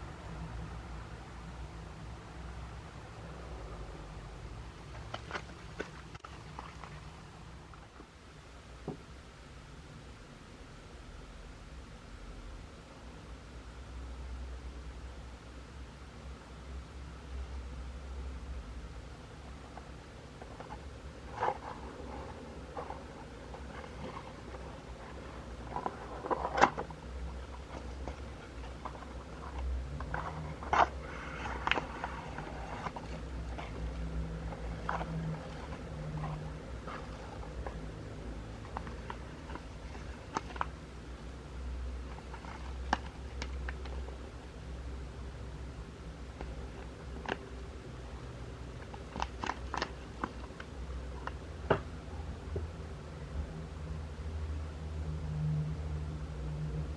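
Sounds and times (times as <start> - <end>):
cardboard rustling and scraping: 5.0 - 7.1, 20.4 - 37.8.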